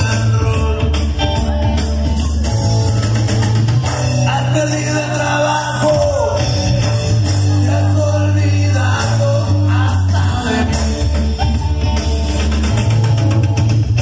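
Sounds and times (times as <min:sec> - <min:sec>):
rock music with singing: 0:00.0 - 0:14.0
steady bass line: 0:00.0 - 0:14.0.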